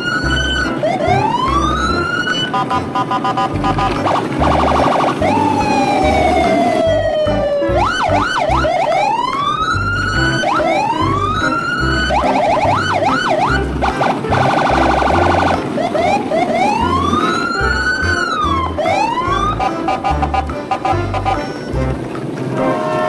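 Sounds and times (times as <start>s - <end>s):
electronic siren effects: 0.0s - 20.4s
quick beeps: 1.8s - 5.4s.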